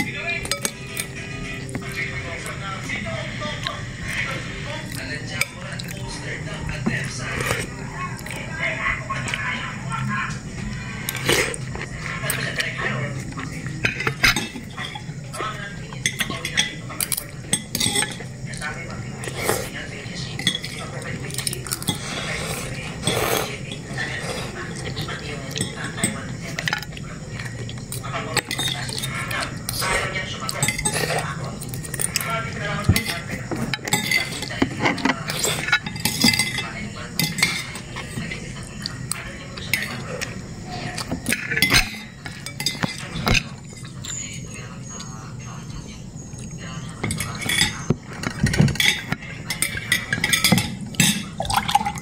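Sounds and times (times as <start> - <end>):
cutlery clinking on ceramic: 0.4 - 1.1, 16.0 - 18.6, 30.5 - 38.0, 41.0 - 44.3, 47.0 - 52.0.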